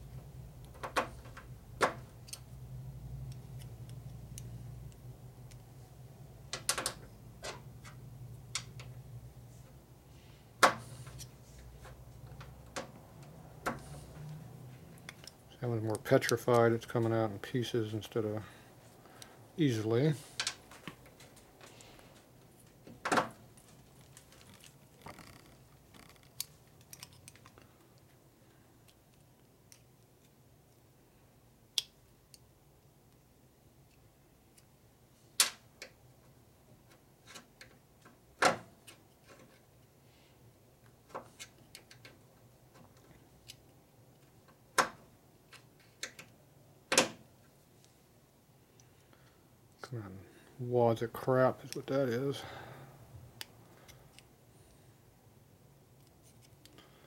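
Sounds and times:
quiet handling: 10.7s - 27.7s.

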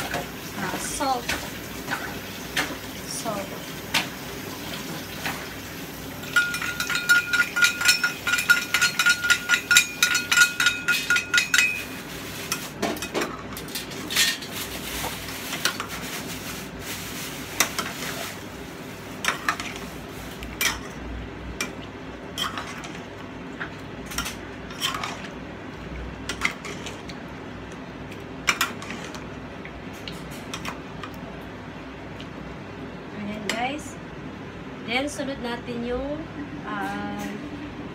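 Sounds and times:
utensil clinking against a pot: 6.2s - 11.9s
metal pot ringing: 6.3s - 11.9s.

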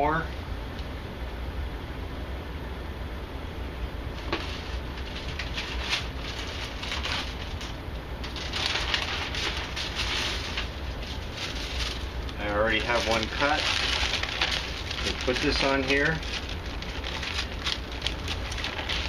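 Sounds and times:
steady low hum: 0.0s - 19.0s
wax paper crinkling: 4.2s - 19.0s.

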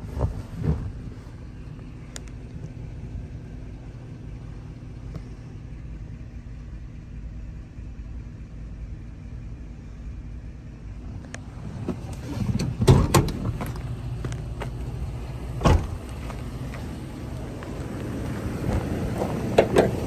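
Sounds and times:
engine idling inside cab: 0.0s - 20.0s.

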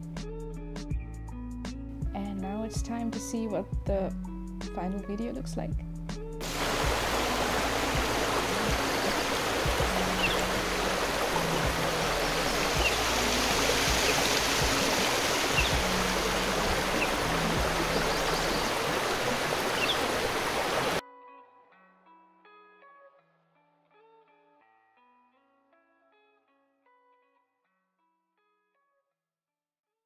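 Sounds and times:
low sustained music notes: 6.4s - 19.7s
waterfall roaring: 6.4s - 21.0s.

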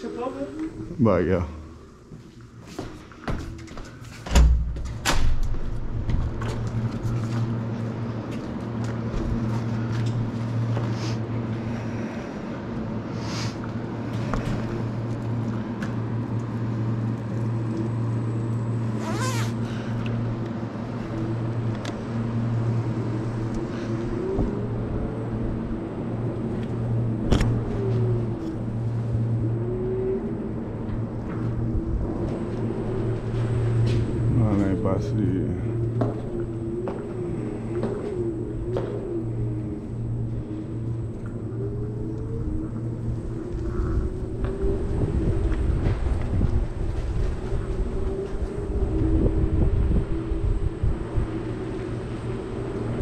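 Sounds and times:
door banging shut: 4.2s - 5.5s
electric scooter motor hum: 5.6s - 53.0s.

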